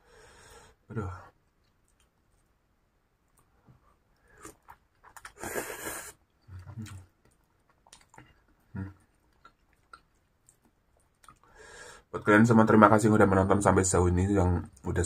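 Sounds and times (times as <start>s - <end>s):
person chewing with wet mouth noises: 1.3s - 11.6s.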